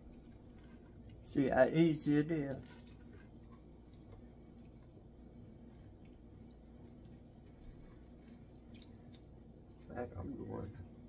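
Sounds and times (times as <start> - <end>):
low room hum: 0.0 - 11.0
wet ticks and drips: 2.4 - 11.0.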